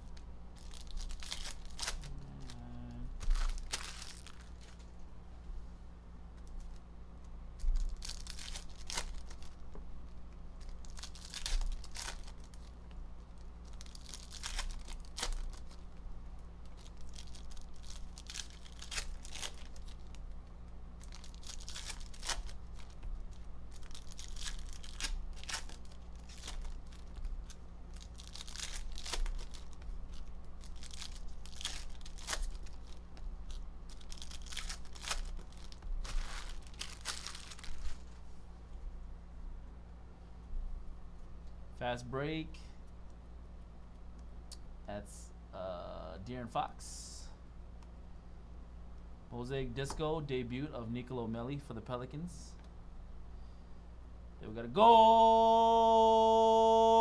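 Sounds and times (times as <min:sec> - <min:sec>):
foil wrappers tearing and crinkling: 0:00.0 - 0:02.6, 0:03.2 - 0:04.9, 0:07.6 - 0:09.6, 0:10.6 - 0:15.9, 0:16.6 - 0:20.4, 0:21.0 - 0:38.2
steady low hum: 0:00.0 - 0:57.0.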